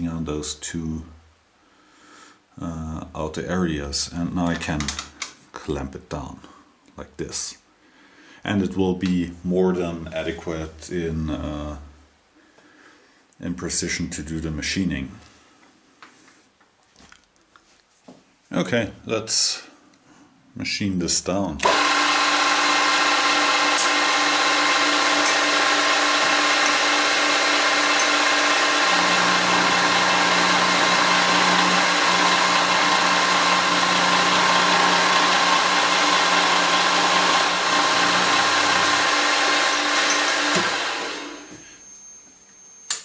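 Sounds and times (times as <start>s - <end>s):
milling cutter cutting metal: 21.6s - 41.6s
milling machine motor whine: 21.6s - 42.5s.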